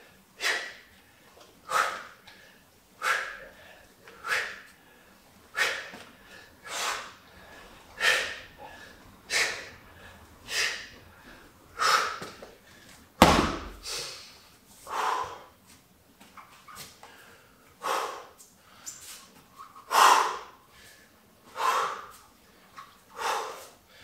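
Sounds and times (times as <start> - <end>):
man exhaling sharply: 1.7 - 12.4, 13.6 - 15.5
bag thudding on floor mat: 13.2 - 13.8.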